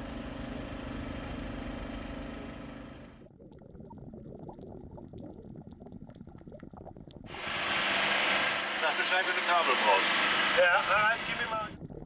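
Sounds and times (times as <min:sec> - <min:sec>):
boat engine humming: 0:00.0 - 0:03.9, 0:07.2 - 0:11.9
low rumble: 0:10.6 - 0:12.0.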